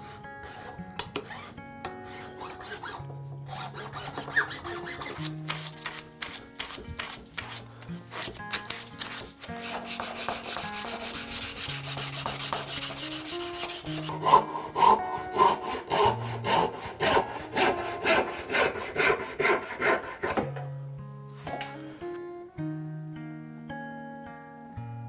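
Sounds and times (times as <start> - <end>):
sandpaper rubbing on wood: 0.0 - 1.5, 2.1 - 20.3
saw cutting wood: 0.0 - 20.5.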